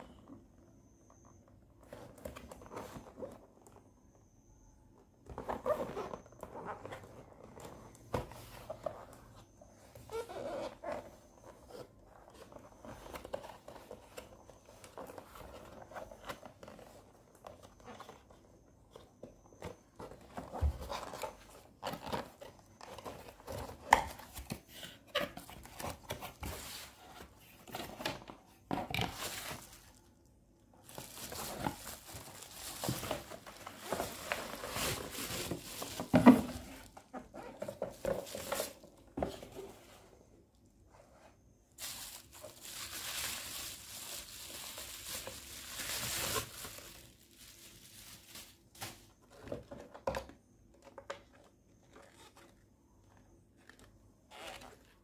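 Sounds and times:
cardboard packaging rustling: 5.2s - 40.1s, 41.1s - 50.0s.

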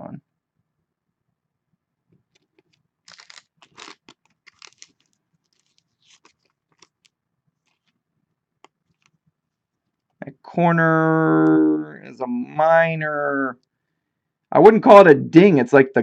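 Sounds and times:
plastic sleeve rustling and scraping: 2.2s - 8.0s, 8.6s - 10.2s.

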